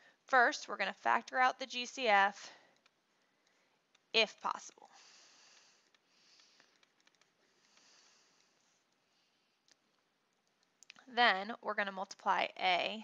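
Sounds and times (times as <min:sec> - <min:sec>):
stylus ticks: 0:02.6 - 0:11.1.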